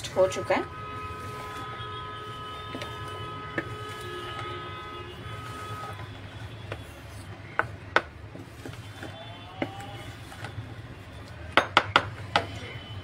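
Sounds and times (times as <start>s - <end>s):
dishes and utensils clinking: 11.5s - 12.6s.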